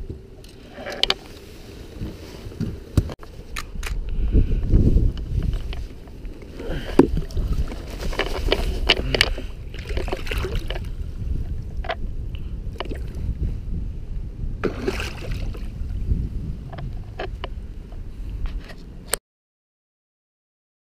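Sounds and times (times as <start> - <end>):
steady low rumble: 0.0 - 19.1
water splashing at boat side: 6.4 - 10.9, 14.6 - 15.8.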